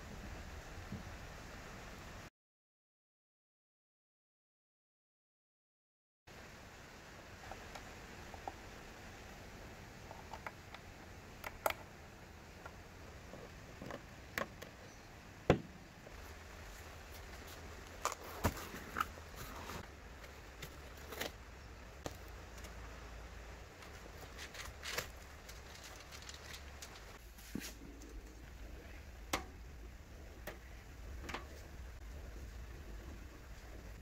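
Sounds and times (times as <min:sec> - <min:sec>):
low steady hum: 0:00.0 - 0:02.3, 0:06.3 - 0:34.0
objects clicking and tapping: 0:23.8 - 0:27.2.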